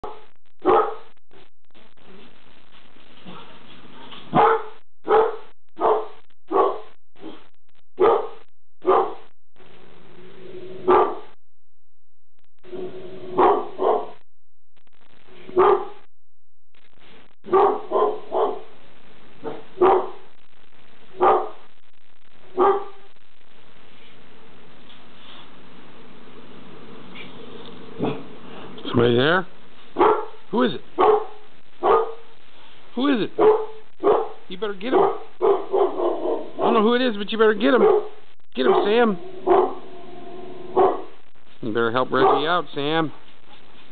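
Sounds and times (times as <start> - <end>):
dog barking: 0.0 - 1.1, 4.3 - 7.4, 8.0 - 9.2, 10.8 - 11.3, 13.3 - 14.2, 15.6 - 16.0, 17.5 - 18.7, 19.4 - 20.3, 21.2 - 21.7, 22.5 - 23.1, 30.0 - 30.4, 31.0 - 32.3, 33.4 - 36.9, 37.7 - 39.9, 40.7 - 41.2, 42.2 - 42.6.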